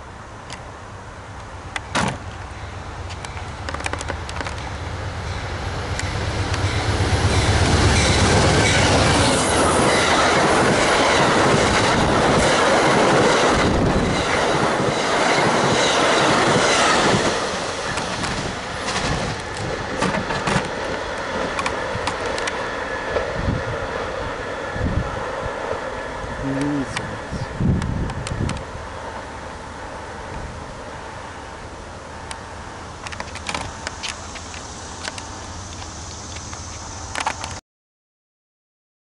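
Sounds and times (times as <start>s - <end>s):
diesel locomotive engine rumble: 0.0s - 37.6s
train cars rolling on rails: 0.0s - 37.6s
wheel clicks over rail joints: 17.9s - 23.3s.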